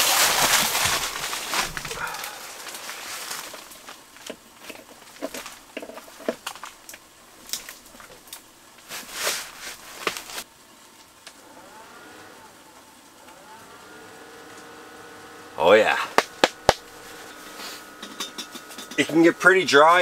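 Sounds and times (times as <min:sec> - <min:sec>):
equipment handling clicks and knocks: 0:04.2 - 0:06.7.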